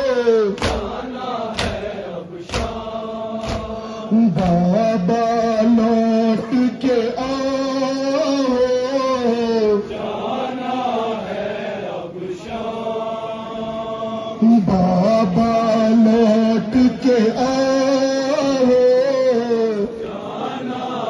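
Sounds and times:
man chanting a lament: 0:00.0 - 0:01.8, 0:03.5 - 0:10.2, 0:14.0 - 0:20.8
blurred voices: 0:00.0 - 0:21.0.

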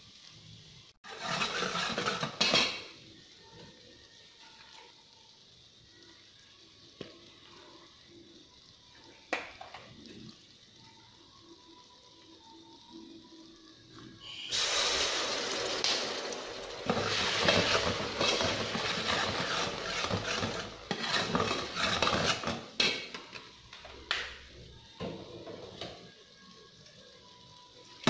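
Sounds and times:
oil sizzling in pot: 0:00.0 - 0:28.0
metal ladle scraping pot: 0:01.0 - 0:02.8, 0:16.8 - 0:22.7.

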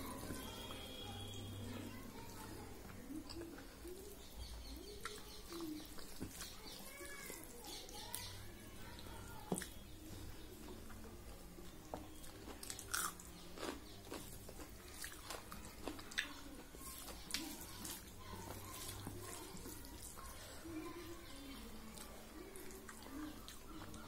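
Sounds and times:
open-mouthed chewing: 0:02.8 - 0:08.4, 0:09.5 - 0:24.0
fingers squishing wet rice: 0:12.1 - 0:20.4.

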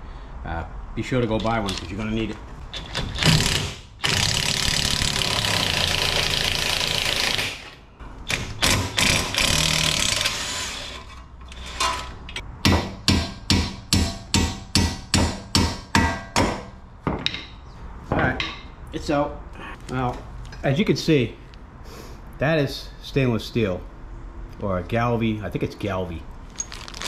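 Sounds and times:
power tool running: 0:03.2 - 0:07.7, 0:08.6 - 0:11.1.

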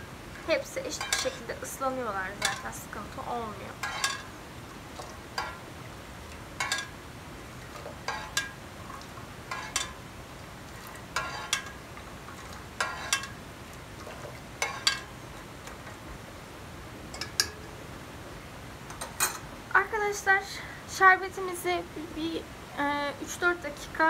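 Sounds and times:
metal spoon stirring syrup: 0:00.9 - 0:03.0, 0:03.7 - 0:04.3, 0:06.6 - 0:07.0, 0:07.7 - 0:10.0, 0:10.8 - 0:11.8, 0:12.4 - 0:13.4, 0:14.1 - 0:15.1
spoon clinking against pot: 0:01.0 - 0:01.4, 0:03.8 - 0:04.3, 0:06.6 - 0:07.0, 0:09.5 - 0:10.0, 0:12.8 - 0:13.4, 0:14.6 - 0:15.1, 0:17.2 - 0:17.7, 0:18.9 - 0:19.4.

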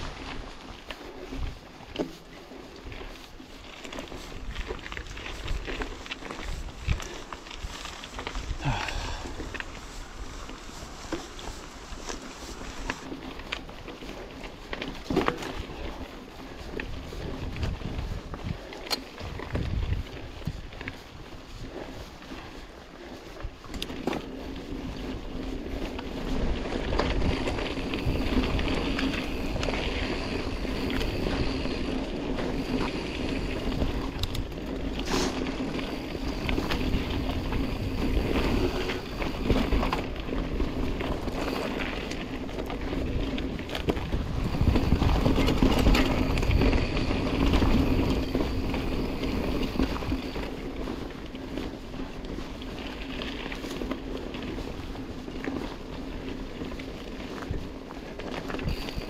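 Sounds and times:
tyre and trail noise: 0:00.0 - 0:59.0
wind buffeting microphone: 0:02.7 - 0:59.0
bike knocks and rattles: 0:14.8 - 0:15.9.

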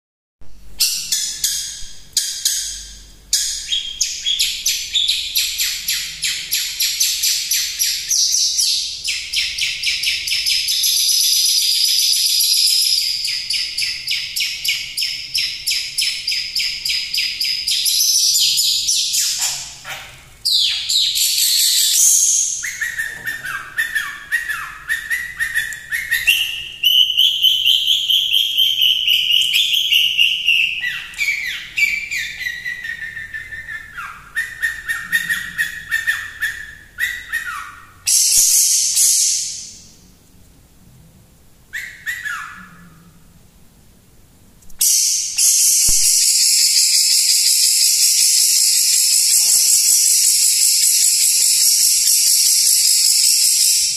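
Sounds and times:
bird chattering song: 0:00.8 - 0:40.0, 0:41.8 - 0:43.0, 0:44.8 - 0:53.9
bird whistled phrases: 0:20.5 - 0:39.8, 0:41.7 - 0:43.0, 0:44.8 - 0:53.9.

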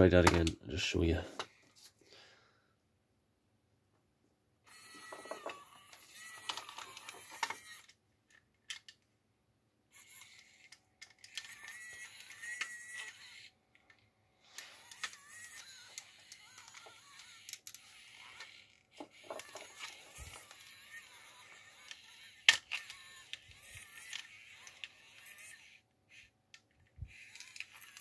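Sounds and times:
small motor whining: 0:04.7 - 0:08.0, 0:09.9 - 0:28.0.

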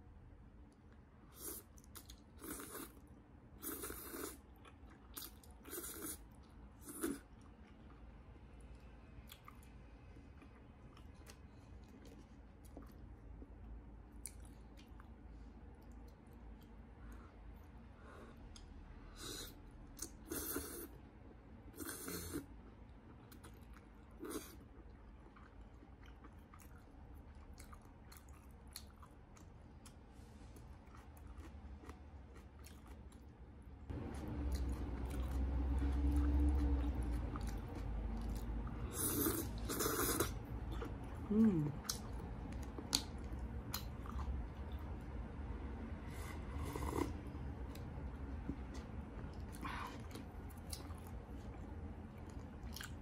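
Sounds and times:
person chewing noodles: 0:01.3 - 0:08.1, 0:08.7 - 0:21.0, 0:21.7 - 0:45.1, 0:46.0 - 0:53.0
low rumble: 0:33.6 - 0:38.8
noodles slurped: 0:34.6 - 0:40.9.

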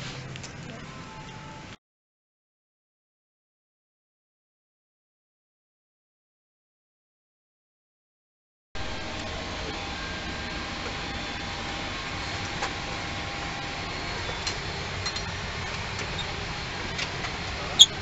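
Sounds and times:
ventilation fans humming: 0:08.8 - 0:18.0.

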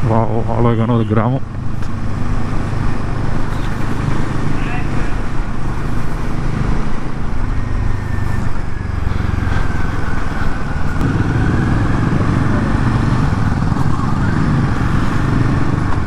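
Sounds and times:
road noise: 0:00.0 - 0:16.0
motorcycle engine running: 0:08.7 - 0:16.0.

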